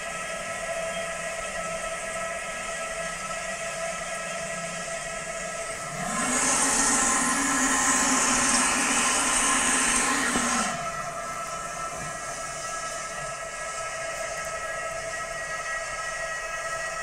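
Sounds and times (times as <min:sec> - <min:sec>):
hiss: 0:06.0 - 0:16.0.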